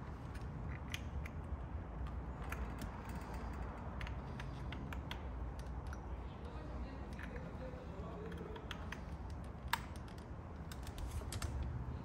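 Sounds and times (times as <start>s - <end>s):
plastic console clicks and rattles: 8.2s - 11.8s.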